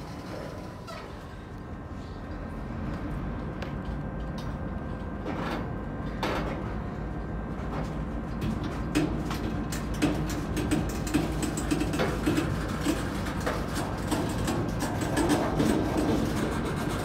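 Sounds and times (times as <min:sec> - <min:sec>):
train wheels rumbling on rail: 0:00.0 - 0:17.0
metallic clanks from train cars: 0:07.6 - 0:17.0.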